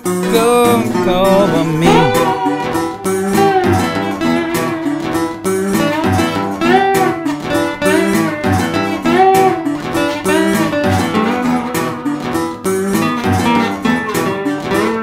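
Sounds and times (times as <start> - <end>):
guitar music with pitch bends: 0.0 - 15.0
low beat: 0.1 - 2.9.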